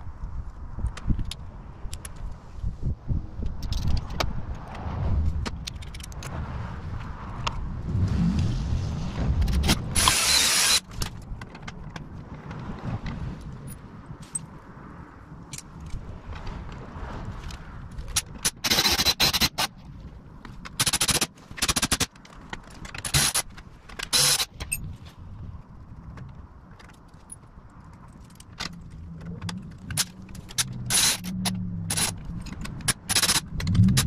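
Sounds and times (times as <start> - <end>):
cordless power tool whirring: 10.0 - 10.9, 24.1 - 24.4.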